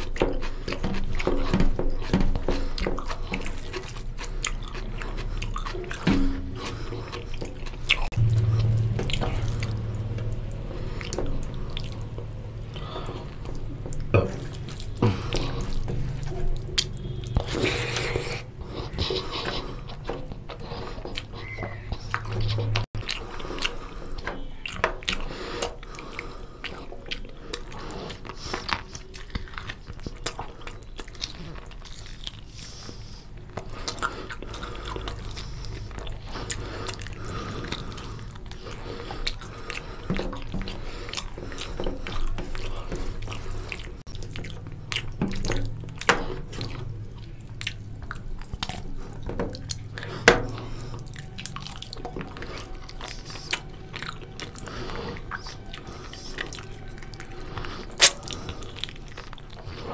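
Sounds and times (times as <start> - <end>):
person chewing food: 0.0 - 59.9
sharp mouth clicks: 58.0 - 59.0.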